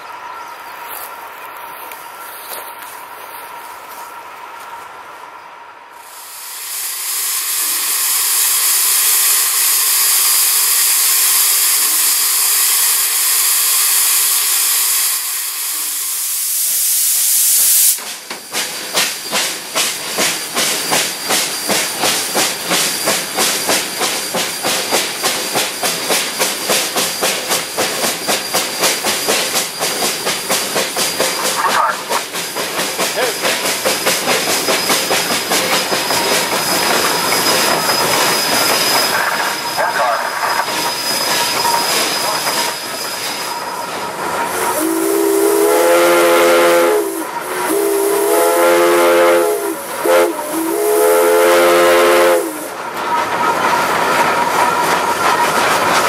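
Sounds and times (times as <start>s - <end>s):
steam hissing: 5.9s - 56.0s.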